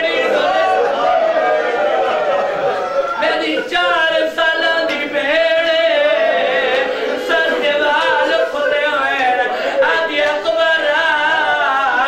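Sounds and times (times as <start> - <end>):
man chanting a lament: 3.2 - 12.0.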